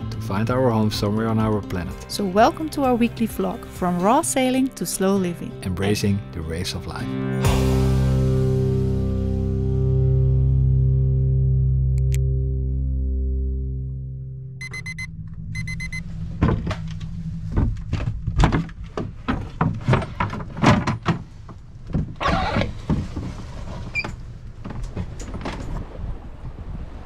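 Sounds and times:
low steady rumble: 9.3 - 26.7
rapid electronic beeping: 14.6 - 16.0
irregular knocks and clunks: 14.6 - 25.9.

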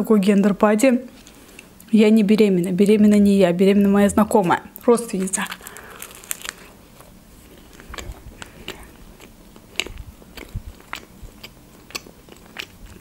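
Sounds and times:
chewing: 5.5 - 13.0
wet mouth clicks: 7.8 - 13.0.

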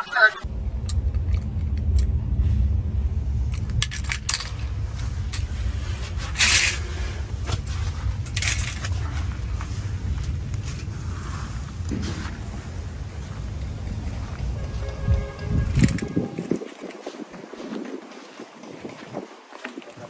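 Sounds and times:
steady low rumble: 0.4 - 19.2
toy car clicking and scraping: 6.2 - 7.0, 8.3 - 9.0, 15.7 - 16.7.

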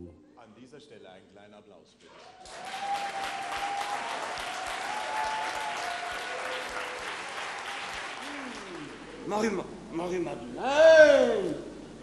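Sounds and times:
audience applause: 2.3 - 9.1.

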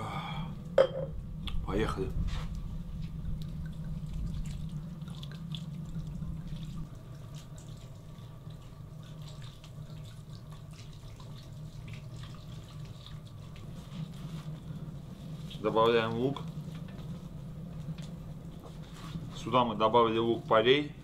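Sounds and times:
steady low hum: 0.0 - 21.0
liquid splashing in a bowl: 3.3 - 13.8.

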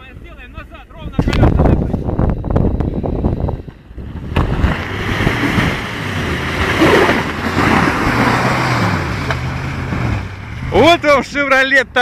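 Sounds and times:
engine running hard: 2.9 - 11.6.

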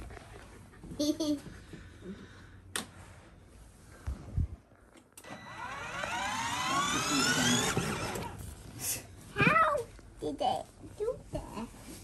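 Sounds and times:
toy truck motor whine: 5.2 - 8.4.

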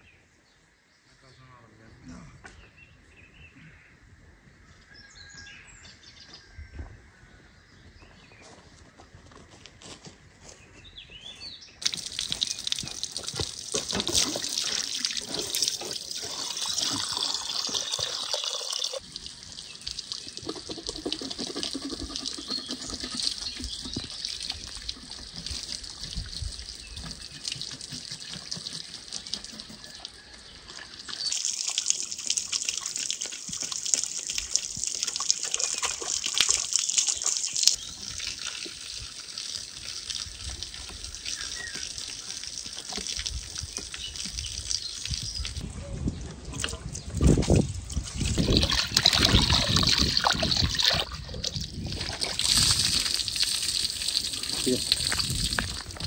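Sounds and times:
water streaming from hose: 11.8 - 45.7, 46.6 - 56.0.

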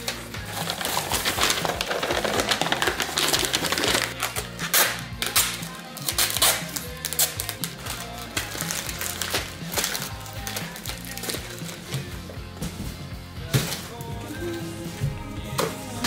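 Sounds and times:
paper crinkling and rustling: 0.0 - 12.1
background music with bass line: 0.0 - 16.0.

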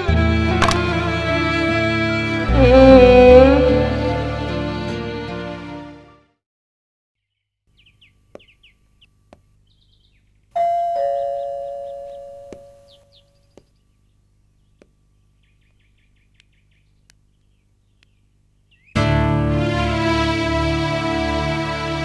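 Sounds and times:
small birds chirping: 7.2 - 19.0
ding-dong doorbell chime: 10.6 - 12.9.

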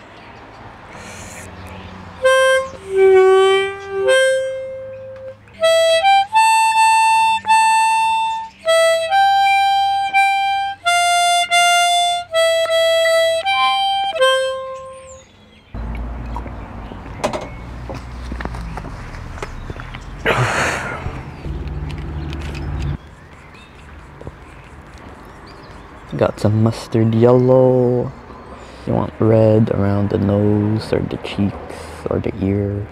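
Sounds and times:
harmonica playing slow tune: 2.2 - 15.2.

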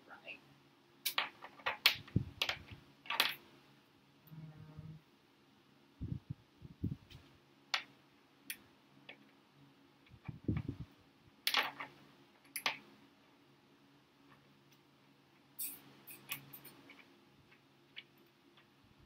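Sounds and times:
dull low thumps: 6.0 - 7.1.

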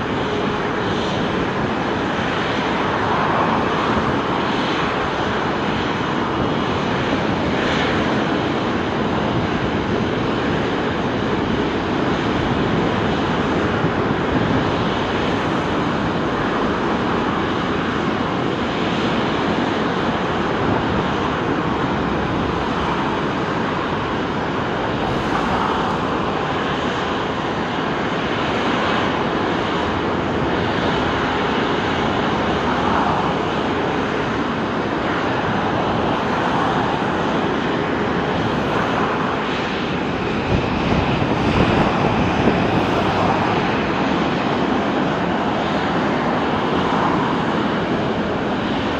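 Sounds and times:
jet engines running: 0.0 - 48.9.

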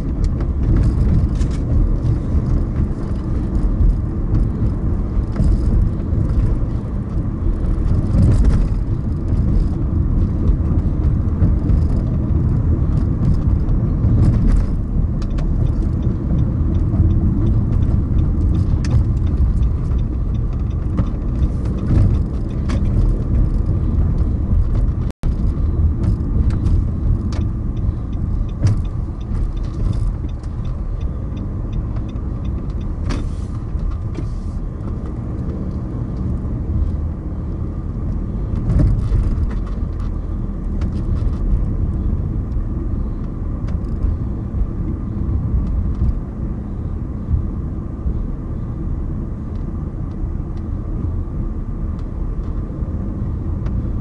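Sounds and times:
light clicks and knocks: 0.0 - 36.8
car road and engine rumble: 0.0 - 54.0.

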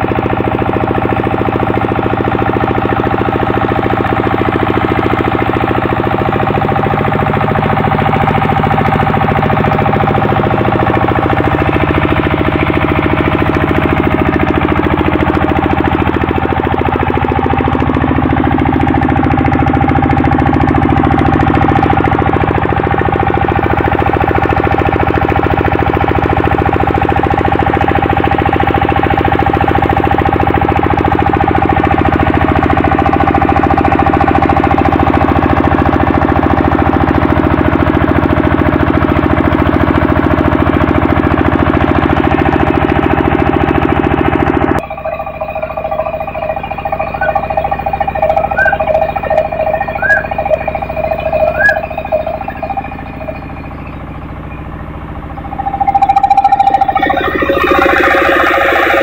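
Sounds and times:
diesel engine running steadily: 0.0 - 59.0.

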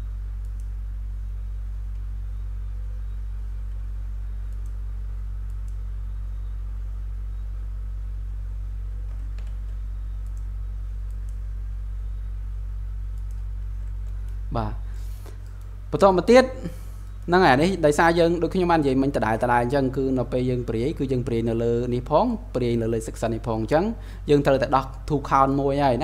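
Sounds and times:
steady low hum: 0.0 - 26.0
computer mouse clicks: 0.4 - 0.8, 4.4 - 4.8, 5.4 - 6.5, 9.0 - 11.5, 13.1 - 14.4, 15.1 - 15.8.

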